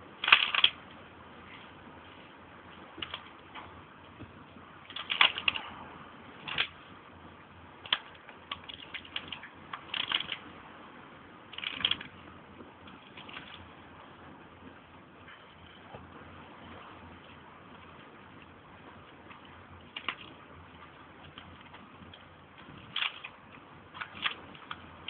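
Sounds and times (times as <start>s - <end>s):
dry branches cracking and snapping: 4.9s - 5.6s, 7.8s - 10.4s, 21.2s - 24.9s.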